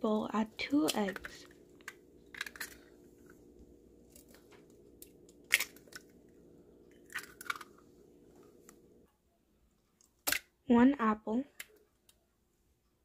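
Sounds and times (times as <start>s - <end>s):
faint steady hum: 0.0s - 13.0s
egg cracking on a bowl: 0.7s - 2.9s, 4.1s - 6.2s, 6.9s - 7.8s.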